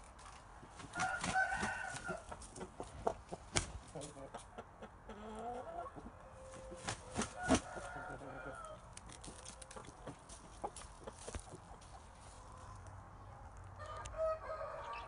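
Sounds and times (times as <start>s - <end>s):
rooster clucking: 1.0s - 8.8s.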